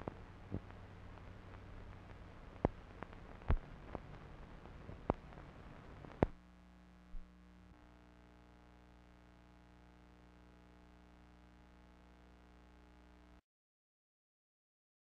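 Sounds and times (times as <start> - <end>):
sharp clicks and pops: 0.0 - 6.4
faint steady hum: 0.0 - 13.4
film soundtrack hiss: 0.0 - 13.4.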